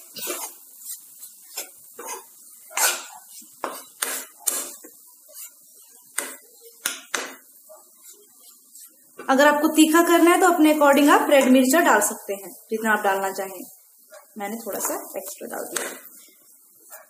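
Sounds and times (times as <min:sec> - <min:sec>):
spoon scraping a pan: 0:00.0 - 0:09.2.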